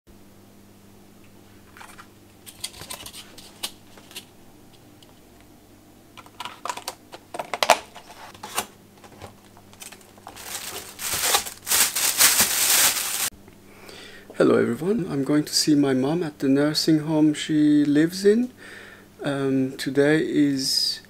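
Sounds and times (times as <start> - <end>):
thin plastic bag rustling: 7.9 - 13.3.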